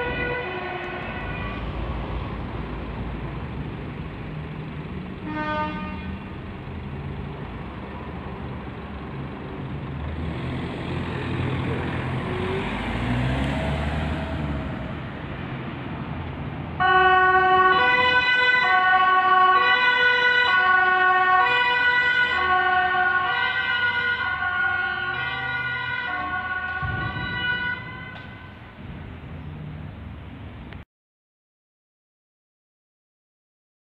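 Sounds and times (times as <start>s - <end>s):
two-tone siren: 0.0s - 1.8s, 16.8s - 28.6s
van engine running: 2.4s - 12.2s.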